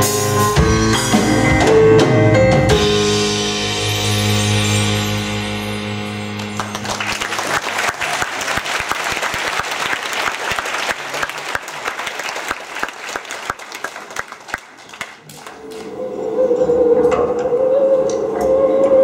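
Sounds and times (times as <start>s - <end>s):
audience applauding: 6.4s - 15.9s.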